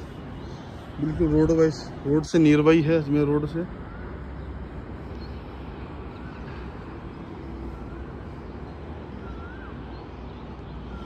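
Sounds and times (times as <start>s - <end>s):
distant road traffic rumble: 0.0s - 11.0s
bird calling: 3.0s - 11.0s.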